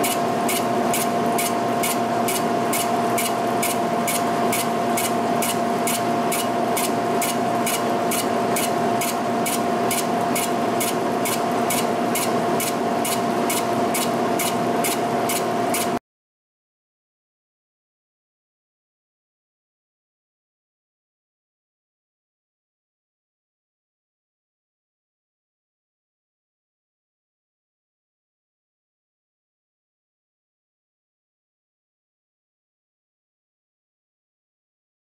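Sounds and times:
machine whine: 0.0 - 16.0
sharp cutting ticks: 0.0 - 16.0.

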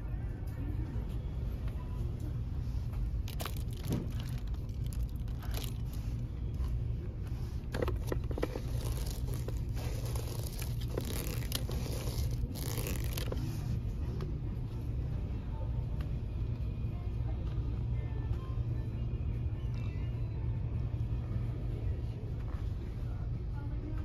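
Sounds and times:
steady low hum: 0.0 - 24.0
candy packaging scraping and crinkling: 3.2 - 6.2, 7.6 - 13.8.

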